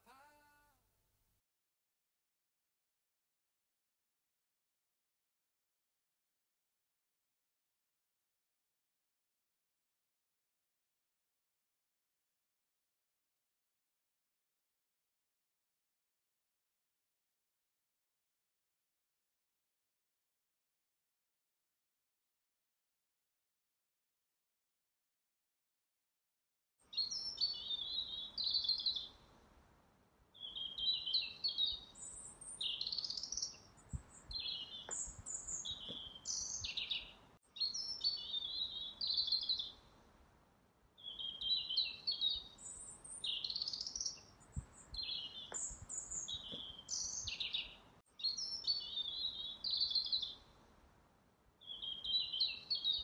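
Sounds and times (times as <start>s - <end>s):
songbird singing: 26.8s - 29.3s, 30.3s - 40.0s, 41.0s - 50.7s, 51.6s - 53.0s.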